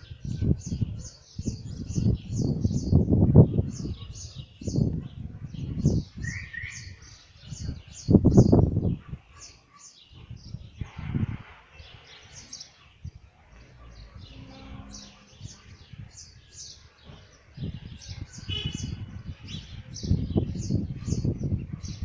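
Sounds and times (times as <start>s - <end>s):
songbirds chirping: 0.0s - 22.0s.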